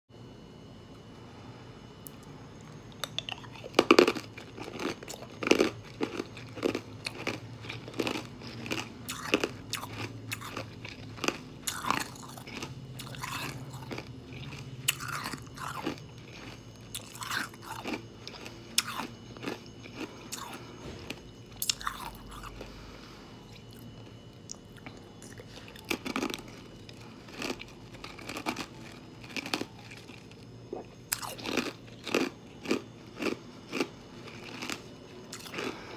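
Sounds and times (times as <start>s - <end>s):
ice crunching between teeth: 2.9s - 22.7s, 24.5s - 35.9s.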